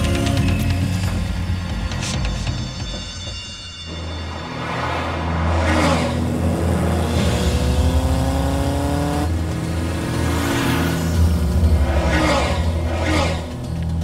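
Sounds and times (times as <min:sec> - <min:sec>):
low-pitched music: 0:00.0 - 0:14.0
vehicle engine revving: 0:04.8 - 0:14.0.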